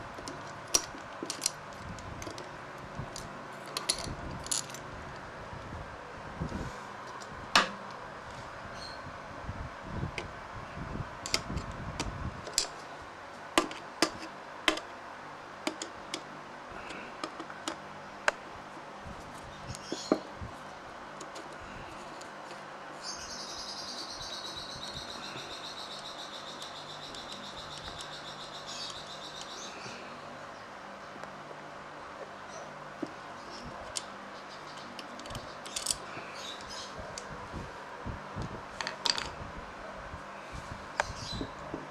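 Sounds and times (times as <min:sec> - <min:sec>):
metal parts clicking and tapping: 0:00.1 - 0:04.8, 0:11.2 - 0:11.8, 0:12.4 - 0:12.8, 0:15.6 - 0:16.3, 0:33.8 - 0:36.7.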